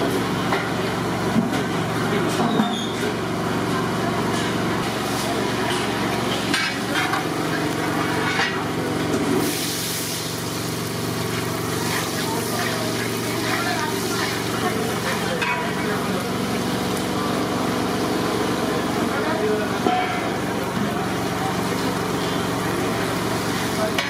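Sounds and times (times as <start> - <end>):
sizzling in hot oil: 3.1 - 24.0.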